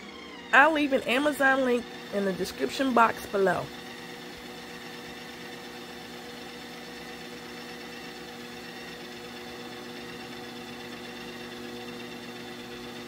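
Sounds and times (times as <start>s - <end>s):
ice cream maker motor whirring: 0.0s - 13.0s.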